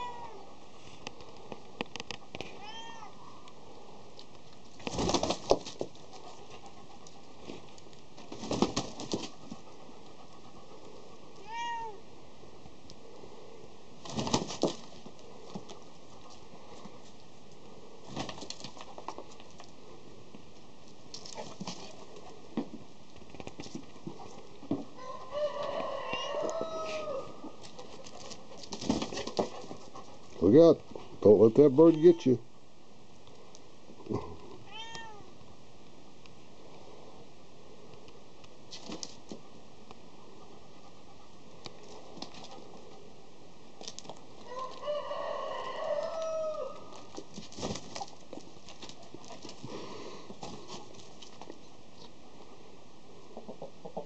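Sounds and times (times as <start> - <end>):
rooster crowing: 25.0 - 27.5, 44.5 - 47.0.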